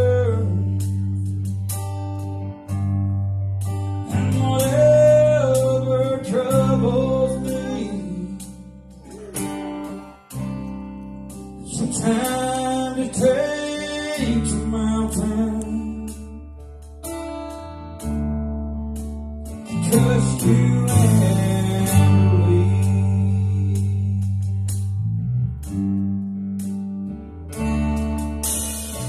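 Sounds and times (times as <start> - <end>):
man singing into microphone: 0.0 - 1.2, 4.0 - 9.4, 11.6 - 16.5, 19.7 - 24.5
acoustic guitar strumming: 0.0 - 29.0
held keyboard chords: 0.0 - 29.0.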